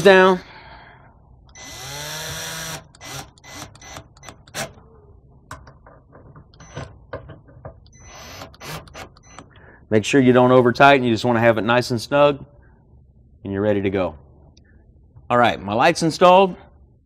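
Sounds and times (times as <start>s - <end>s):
cordless drill motor spinning: 1.5s - 4.8s, 7.9s - 9.4s
drill bursts and clicks: 1.5s - 4.8s, 7.9s - 9.5s.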